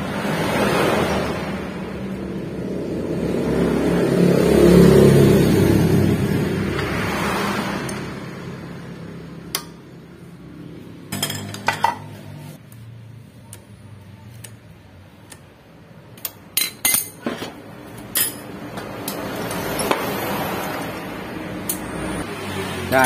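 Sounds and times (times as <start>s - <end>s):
metal tools clinking and knocking: 11.1s - 12.2s, 16.1s - 21.9s.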